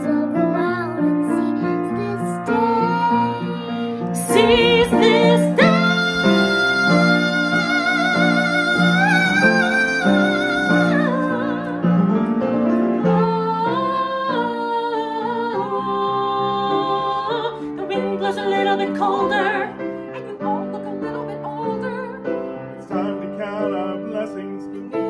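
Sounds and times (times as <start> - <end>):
piano accompaniment: 0.0 - 25.0
person singing operatically: 1.4 - 12.1.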